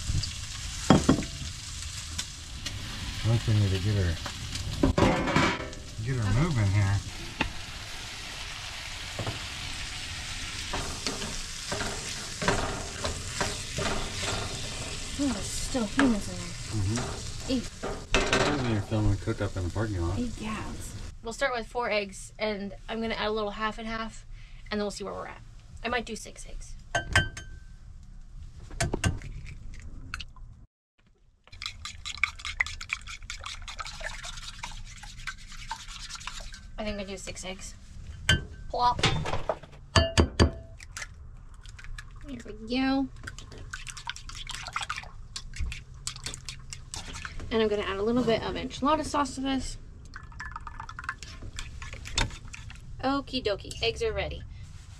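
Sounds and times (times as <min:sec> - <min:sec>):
food sizzling in skillet: 0:00.0 - 0:05.0, 0:05.7 - 0:21.1
wooden spatula scraping pan: 0:10.7 - 0:15.2
fork beating eggs in a bowl: 0:31.5 - 0:36.7, 0:43.3 - 0:47.3, 0:51.2 - 0:52.8
eggs cracking on a bowl: 0:43.2 - 0:47.1.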